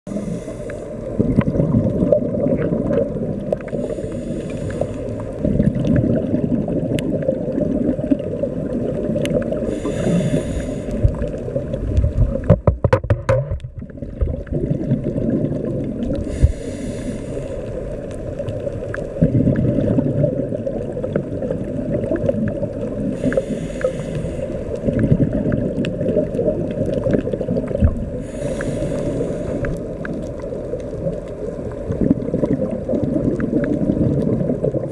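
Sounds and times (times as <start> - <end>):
scuba regulator breathing hiss: 0.1 - 1.1, 3.7 - 5.4, 9.6 - 11.2, 16.2 - 17.9, 23.1 - 24.9, 28.2 - 30.0
underwater rumble: 0.1 - 34.9.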